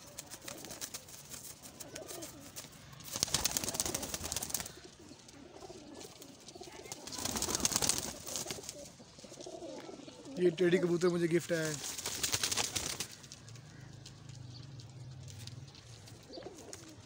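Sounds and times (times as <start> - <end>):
loud rustling bursts: 0.0 - 5.0, 11.4 - 14.2
pigeons cooing softly: 0.0 - 17.0.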